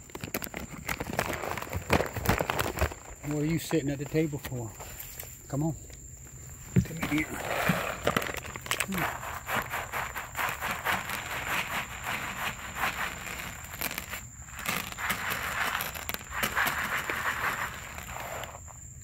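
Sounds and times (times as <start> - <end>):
paper bag crinkling: 0.0 - 4.2, 6.8 - 18.8
kibble pouring onto plastic tray: 6.9 - 18.7.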